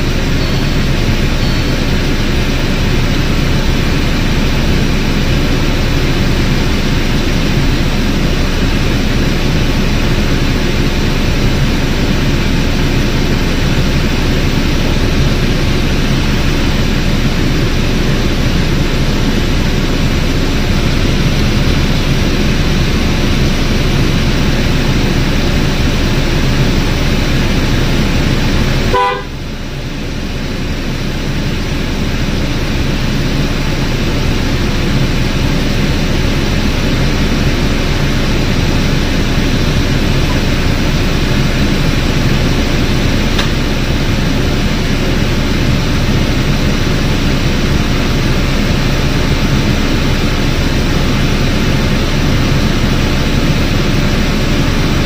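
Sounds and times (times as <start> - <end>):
short tone: 0.0 - 2.1, 28.9 - 29.4
blower fan rushing air: 0.0 - 55.0.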